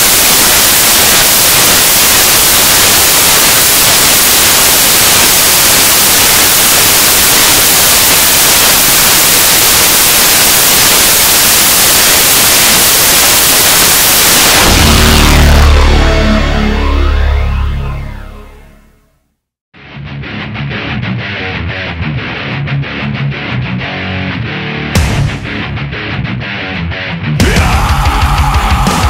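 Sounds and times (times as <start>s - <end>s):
loud static hiss: 0.0s - 18.7s
heavy metal music: 13.2s - 19.2s, 19.8s - 29.0s.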